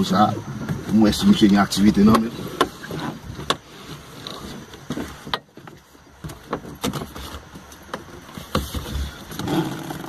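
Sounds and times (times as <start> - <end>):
knocks and clicks in car: 3.4 - 3.6, 4.9 - 10.0.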